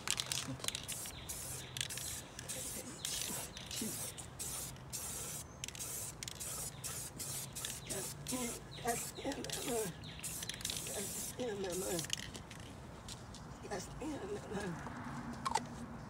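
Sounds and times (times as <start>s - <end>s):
aerosol spray can hissing: 0.8s - 12.1s.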